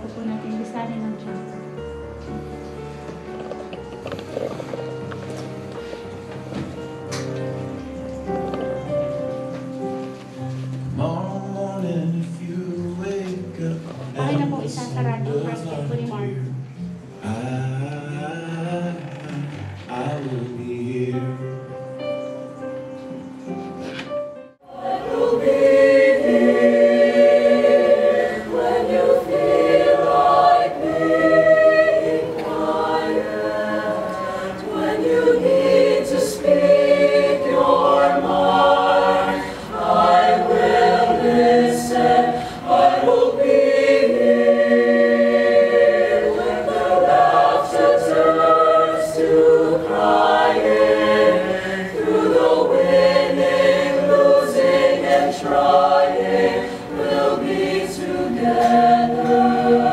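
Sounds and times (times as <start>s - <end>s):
choir singing slowly: 23.0s - 59.9s.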